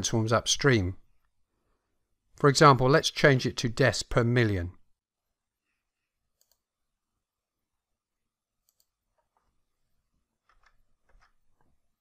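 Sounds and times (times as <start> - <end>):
mouse and keyboard clicks: 6.4 - 6.7, 8.6 - 9.5, 10.4 - 11.7.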